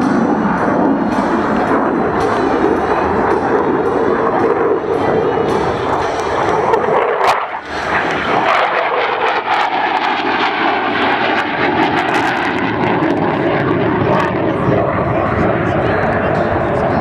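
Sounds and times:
jet engine roaring overhead: 0:00.0 - 0:17.0.

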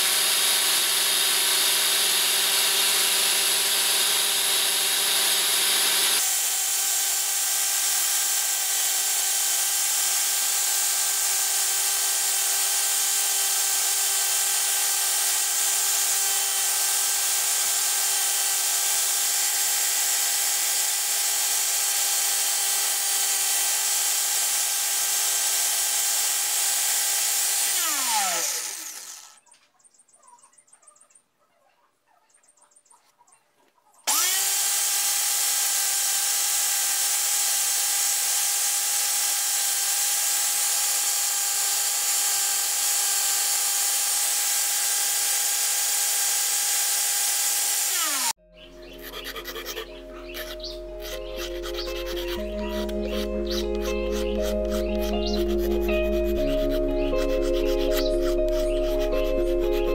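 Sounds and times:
grinder disc spinning down: 0:00.0 - 0:06.3, 0:10.4 - 0:29.4, 0:34.1 - 0:48.4
angle grinder sanding: 0:00.0 - 0:29.4, 0:34.1 - 0:59.9.

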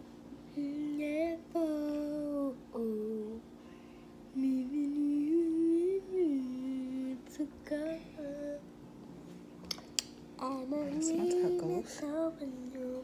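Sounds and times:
person humming a wordless tune: 0:10.4 - 0:13.0.

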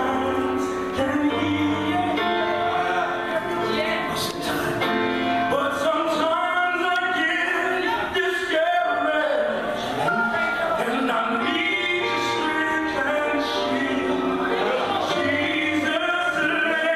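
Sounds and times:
instrumental backing: 0:00.0 - 0:16.9
person singing gospel song: 0:00.0 - 0:16.9.

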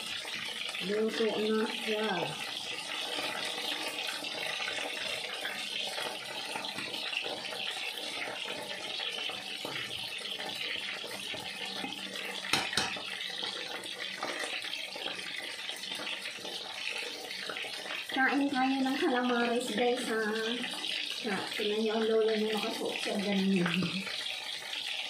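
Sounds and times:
food deep-frying in oil: 0:00.0 - 0:25.0
utensils clicking against pan: 0:12.5 - 0:13.1.

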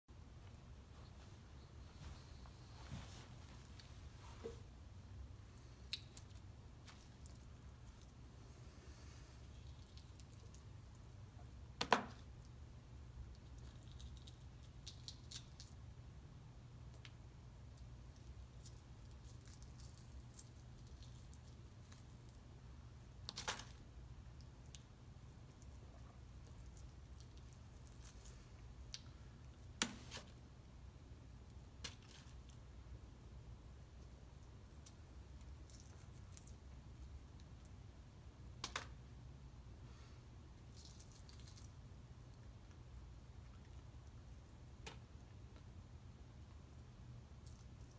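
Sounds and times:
low steady hum: 0:00.1 - 0:47.9
eggshell cracking while peeled: 0:05.8 - 0:06.5, 0:13.2 - 0:15.9.

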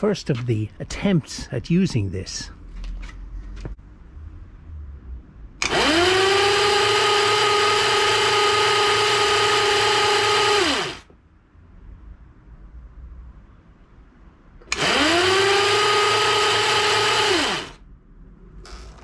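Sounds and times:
electric motor whine: 0:05.6 - 0:11.0, 0:14.7 - 0:17.8.

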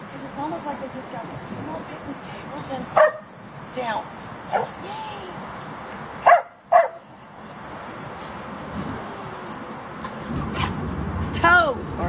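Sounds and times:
insects droning: 0:00.0 - 0:12.0
dog barking: 0:02.9 - 0:03.3, 0:04.5 - 0:04.8, 0:06.2 - 0:07.0
dog yipping: 0:03.0 - 0:03.3, 0:06.2 - 0:07.0.

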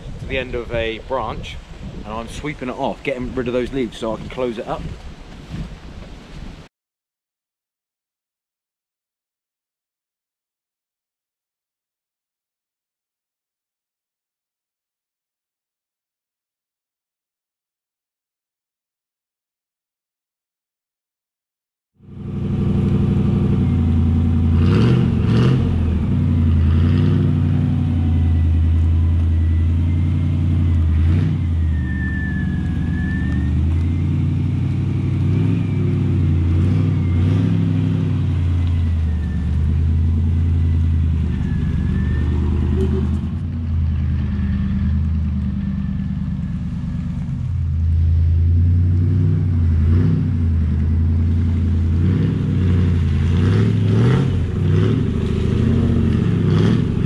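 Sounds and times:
truck engine revving: 0:22.0 - 0:57.0
thin wavering whine: 0:27.4 - 0:43.4.

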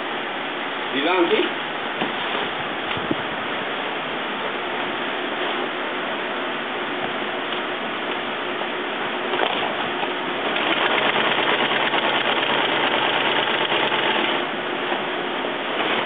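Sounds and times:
industrial sewing machine stitching: 0:10.5 - 0:14.4.

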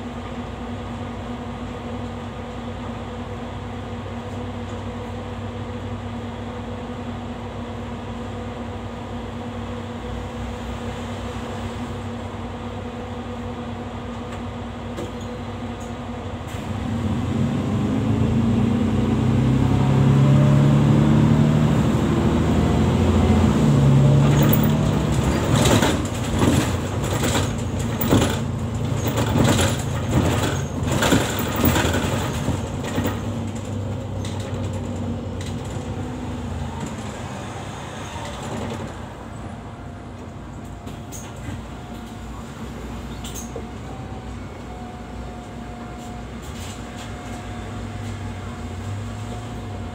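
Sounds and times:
bus engine running: 0:00.0 - 0:49.9
knocks and rattles in bus: 0:14.0 - 0:16.2, 0:21.9 - 0:37.2, 0:38.1 - 0:39.3, 0:40.1 - 0:42.3.

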